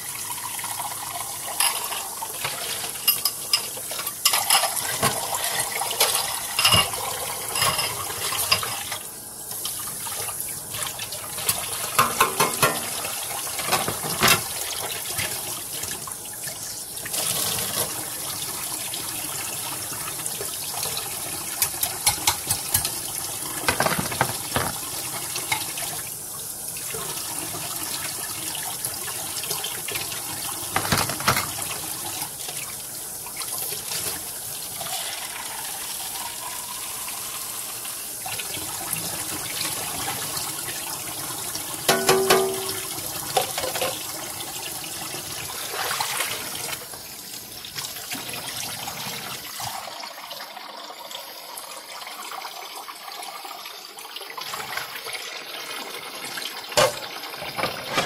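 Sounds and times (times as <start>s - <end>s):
tap water running into sink: 0.2s - 53.5s, 54.2s - 58.0s
dishes clinking: 1.6s - 5.3s, 6.0s - 8.8s, 11.4s - 13.0s, 13.6s - 14.6s, 21.6s - 25.7s, 30.7s - 31.7s, 41.9s - 44.0s, 56.8s - 58.0s.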